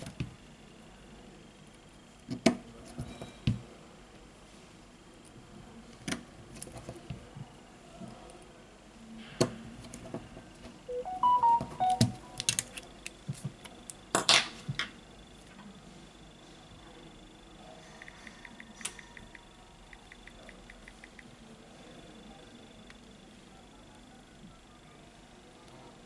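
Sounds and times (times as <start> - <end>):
phone power-on chime: 10.9 - 12.5.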